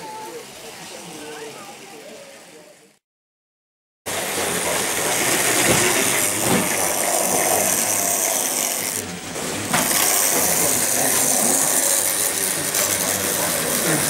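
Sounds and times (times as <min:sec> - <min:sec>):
model trains clattering on metal track: 0:04.1 - 0:14.0.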